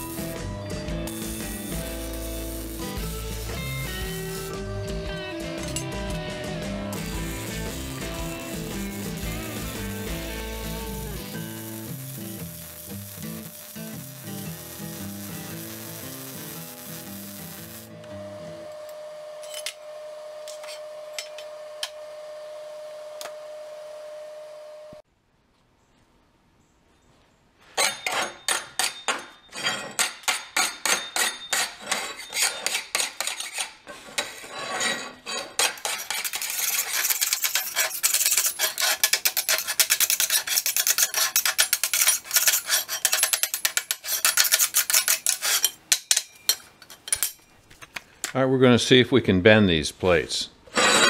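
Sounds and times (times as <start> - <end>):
hand file rasping on steel: 30.0 - 45.8.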